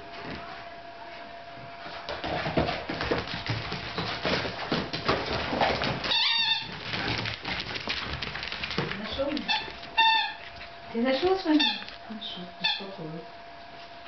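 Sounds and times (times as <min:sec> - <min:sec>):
dog claws clicking on floor: 0:02.2 - 0:12.1.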